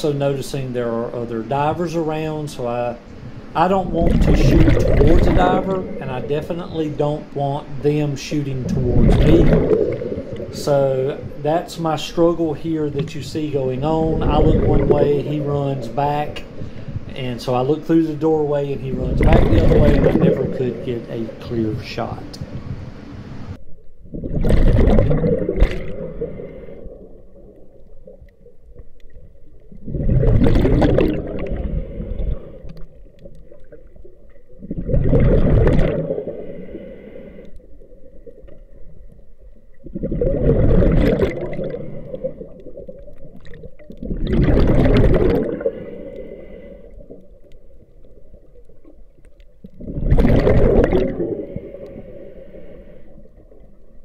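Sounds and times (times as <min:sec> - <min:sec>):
exhaled bubbles underwater: 0:01.5 - 0:54.0
breathing through a regulator: 0:26.1 - 0:27.0, 0:31.4 - 0:32.7, 0:36.2 - 0:37.7, 0:45.6 - 0:47.2, 0:51.3 - 0:53.3.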